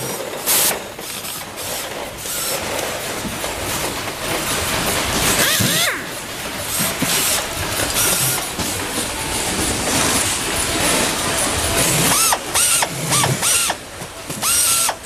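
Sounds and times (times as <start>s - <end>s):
workshop hiss: 0.0s - 15.0s
air screwdriver whine: 11.8s - 15.0s.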